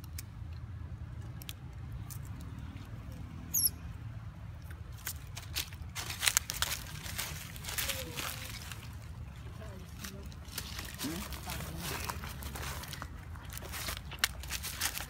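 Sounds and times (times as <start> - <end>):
high chirp: 3.5 - 3.8
dry leaves rustling and crackling: 4.9 - 15.0.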